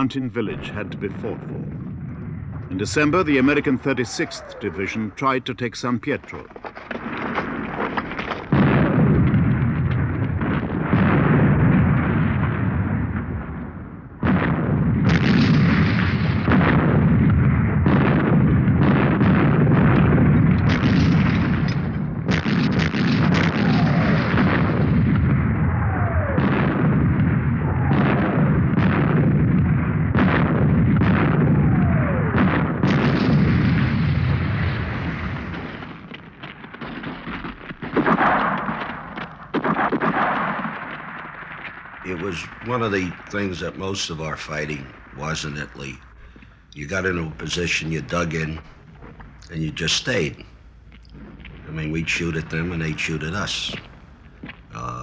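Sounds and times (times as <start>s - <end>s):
sharp blast: 0.0s - 5.6s
artillery explosions: 0.0s - 55.0s
gunfire: 0.0s - 55.0s
falling shell whistles: 3.8s - 5.1s.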